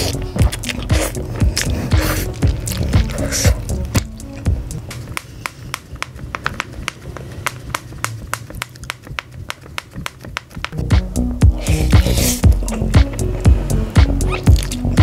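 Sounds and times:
plastic snack bag crackling: 0:00.0 - 0:03.3
snack crunching: 0:00.0 - 0:13.2, 0:14.0 - 0:15.0.

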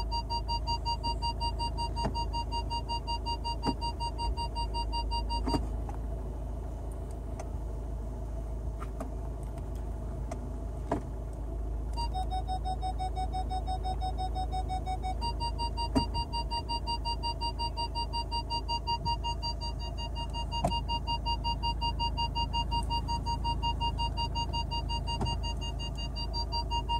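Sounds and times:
rapid electronic warning beep: 0:00.0 - 0:05.6, 0:12.0 - 0:26.9
car engine idling: 0:00.0 - 0:26.9.

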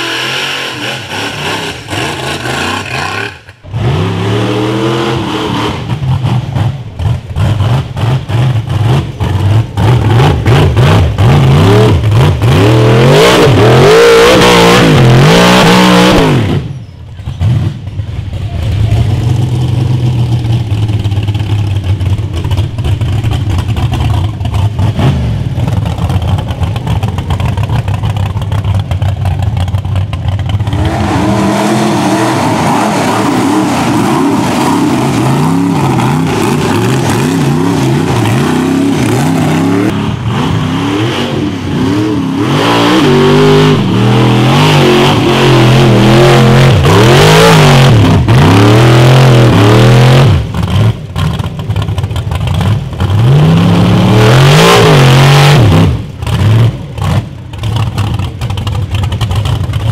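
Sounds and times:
buggy engine revving hard: 0:00.0 - 0:59.8.

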